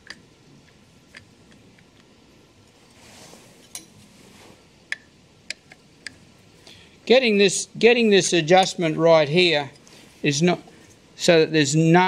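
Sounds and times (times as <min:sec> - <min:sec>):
faint metal scrape: 0:02.8 - 0:04.6.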